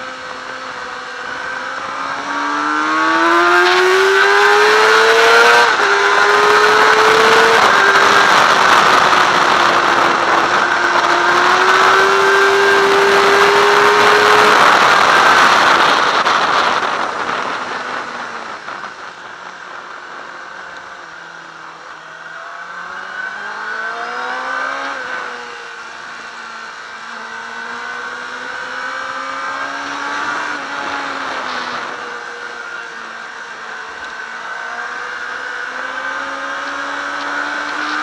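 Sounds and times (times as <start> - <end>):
motorcycle engine revving: 0.0 - 38.0
wind rush: 0.3 - 21.0.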